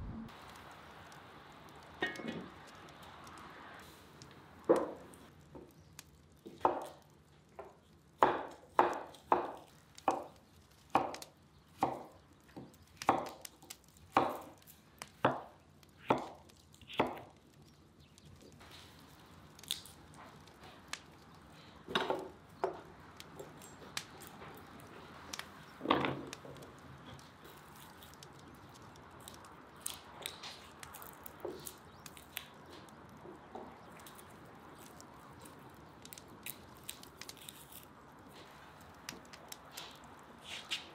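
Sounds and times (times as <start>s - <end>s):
knife chopping on wood: 8.2s - 10.3s
knife peeling garlic clicks: 19.6s - 20.0s.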